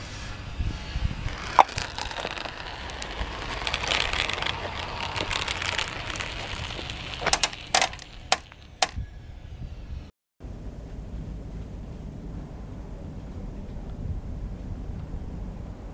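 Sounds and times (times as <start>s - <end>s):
marbles clicking together: 1.3s - 9.0s
marbles rattling down plastic track: 1.3s - 9.0s.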